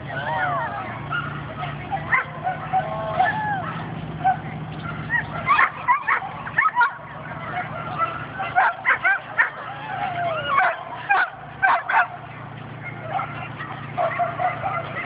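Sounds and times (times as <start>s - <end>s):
generator humming: 0.0s - 15.0s
dog yipping and whining: 3.5s - 12.0s.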